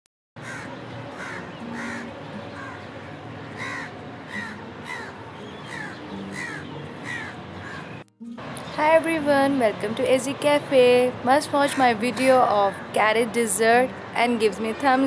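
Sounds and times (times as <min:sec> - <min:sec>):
crows cawing: 0:00.4 - 0:08.0.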